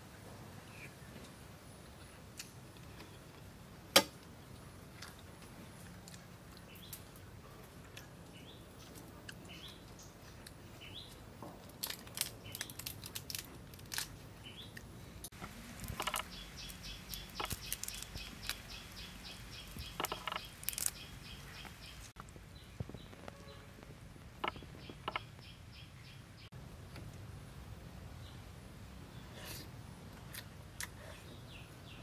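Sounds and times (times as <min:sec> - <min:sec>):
prawn shells cracking: 0:11.6 - 0:14.2, 0:15.8 - 0:18.8, 0:19.6 - 0:21.1
birds chirping: 0:15.4 - 0:23.7, 0:24.3 - 0:26.5.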